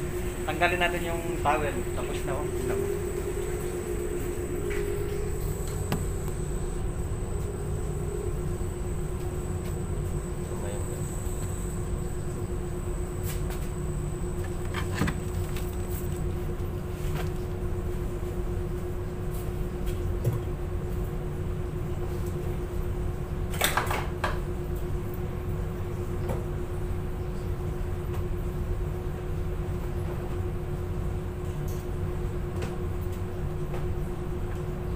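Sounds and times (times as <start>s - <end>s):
constant mid-pitched tone: 0.0s - 18.7s
machine hum and rumble: 0.0s - 34.9s.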